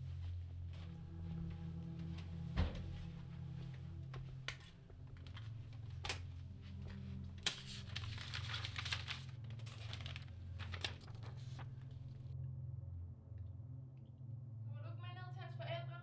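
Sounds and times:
paper rustling: 0:04.4 - 0:12.3.

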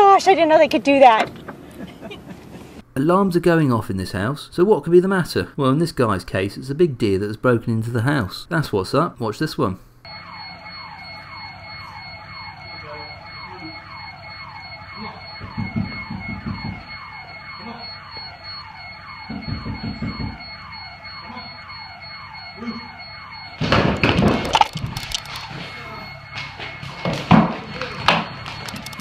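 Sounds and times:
house alarm siren whooping: 0:10.0 - 0:29.0.

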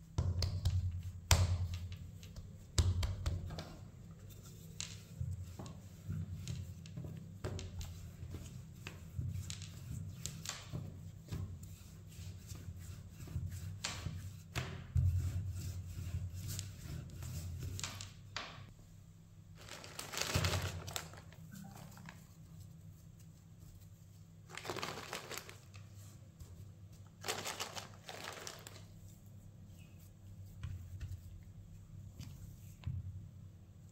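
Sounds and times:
rolling pin rolling over dough: 0:00.2 - 0:18.6
shredded cheese rustling: 0:24.5 - 0:25.7.

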